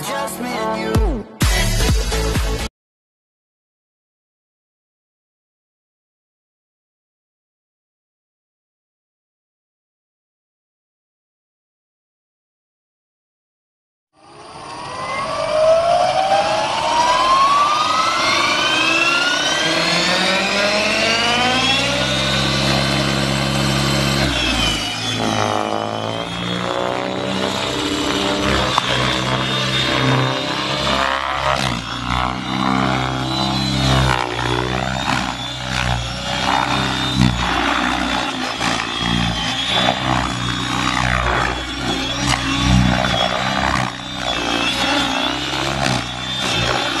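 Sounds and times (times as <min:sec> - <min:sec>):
rc helicopter rotor whine: 0:14.2 - 0:47.0.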